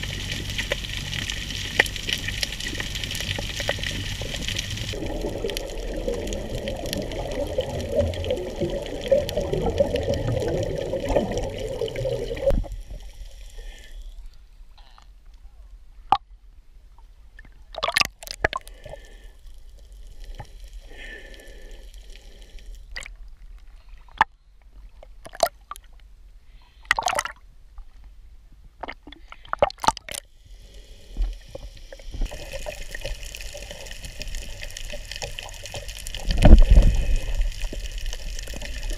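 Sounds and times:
underwater rushing water: 0.0s - 14.2s, 29.6s - 38.9s
underwater clicks and pops: 16.1s - 16.3s, 17.7s - 18.7s, 25.2s - 25.9s, 26.8s - 27.4s, 28.8s - 30.2s, 36.2s - 36.9s.

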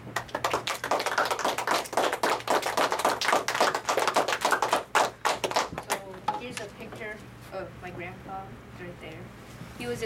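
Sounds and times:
small group applauding: 0.0s - 6.2s.

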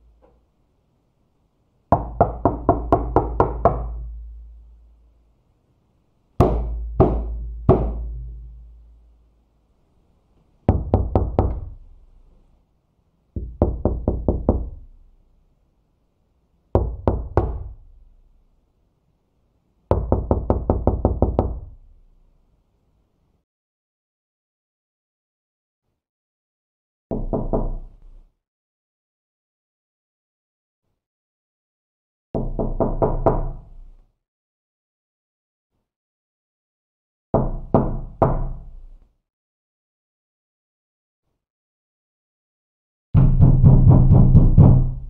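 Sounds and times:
knocking on a door: 1.9s - 4.3s, 6.4s - 8.6s, 10.7s - 11.8s, 13.4s - 14.8s, 16.8s - 17.8s, 19.9s - 21.8s, 27.1s - 27.8s, 32.4s - 33.5s, 37.4s - 38.6s, 43.2s - 45.0s.

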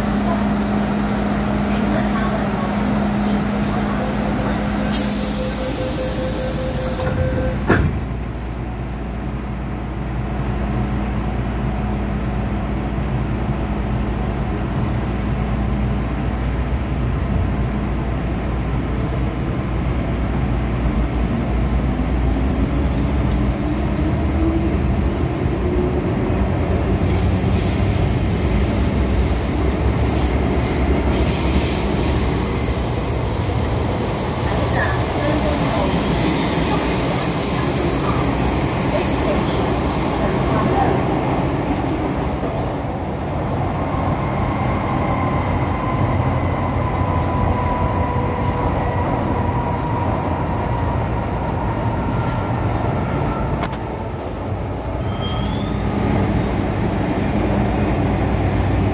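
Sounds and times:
train wheel and track rumble: 0.0s - 58.9s
hiss: 4.9s - 7.0s
high-pitched wheel squeal: 27.1s - 33.0s, 55.0s - 55.9s.

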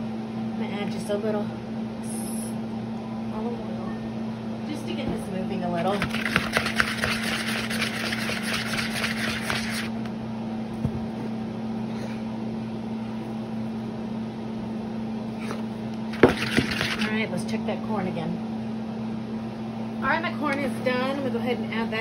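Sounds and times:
tomatoes tossed in plastic bowl: 5.9s - 9.9s, 16.1s - 17.1s.

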